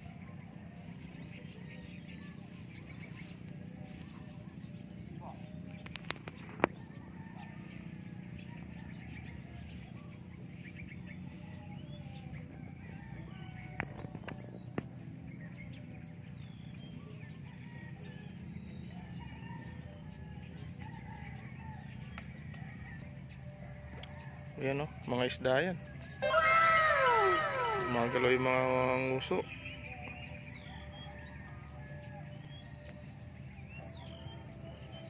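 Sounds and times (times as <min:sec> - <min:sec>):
high insect buzz: 0:26.2 - 0:28.7
rooster crowing: 0:26.2 - 0:28.8
birds chirping: 0:26.2 - 0:29.8.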